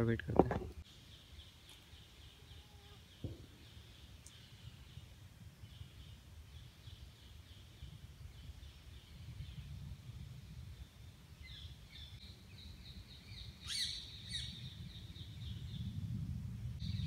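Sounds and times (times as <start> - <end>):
soft knock: 3.2 - 3.5.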